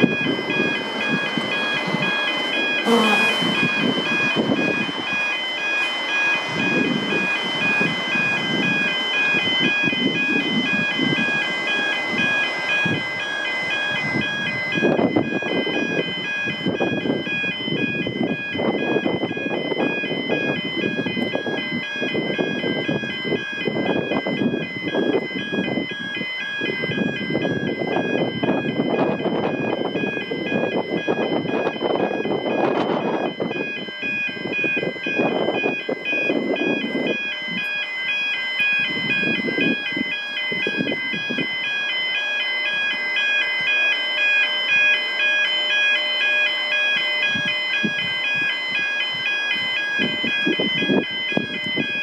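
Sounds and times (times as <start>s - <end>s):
level crossing warning bells: 0.0s - 52.0s.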